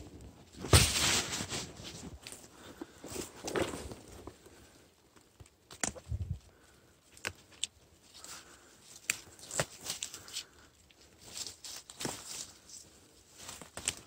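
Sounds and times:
twigs snapping: 5.2 - 6.4, 7.1 - 12.6, 13.4 - 14.0
dry leaves rustling: 8.2 - 14.0.

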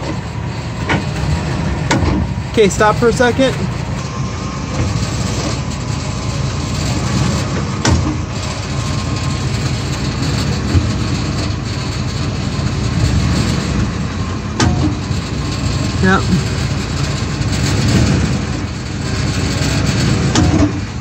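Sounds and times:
truck engine idling: 0.0 - 21.0
sharp clunks: 1.8 - 2.3, 14.6 - 15.0, 20.3 - 20.8.

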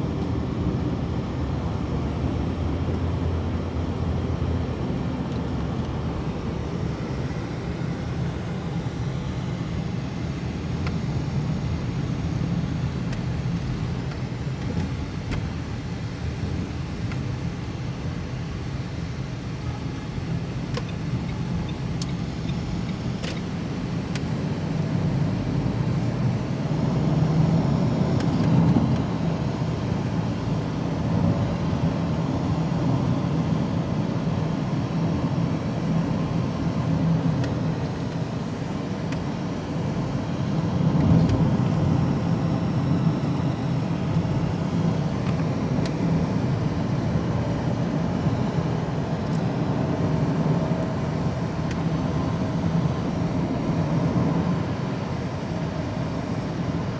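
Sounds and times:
car interior engine and road rumble: 0.0 - 56.9.

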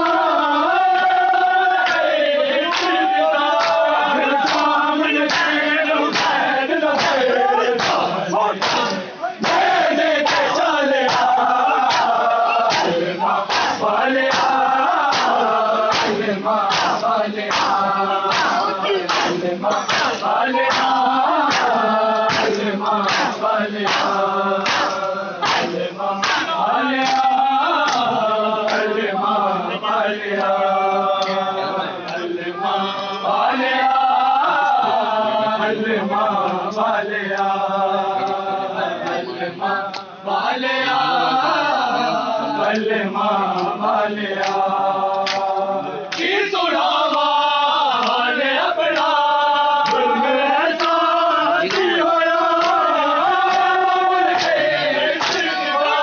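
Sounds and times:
crowd of men chanting: 0.0 - 56.0
hands slapping chests: 2.7 - 3.0, 3.6 - 6.4, 7.0 - 7.2, 7.8 - 9.7, 11.1 - 27.3, 27.9 - 28.1, 44.4 - 44.6, 45.2 - 46.3, 50.8 - 51.0, 51.6 - 52.9, 53.5 - 53.7, 54.4 - 54.6, 55.2 - 55.6.

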